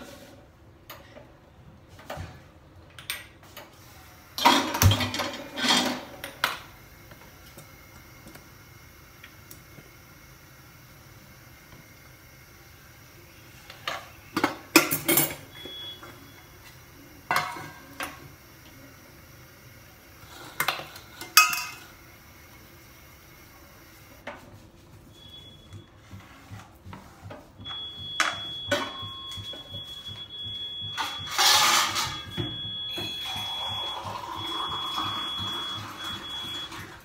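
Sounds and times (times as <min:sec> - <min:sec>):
steel bowls and utensils clattering: 0:04.4 - 0:06.2, 0:20.3 - 0:21.9, 0:31.0 - 0:32.3.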